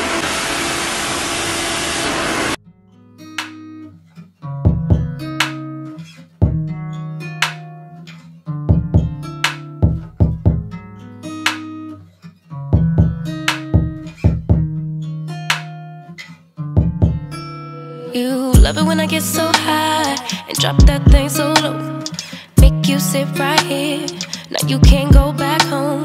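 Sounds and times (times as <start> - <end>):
plucked guitar over deep bass: 4.5 - 5.8, 6.4 - 7.2, 8.6 - 10.9, 12.7 - 15.0, 16.7 - 17.5, 18.6 - 26.0.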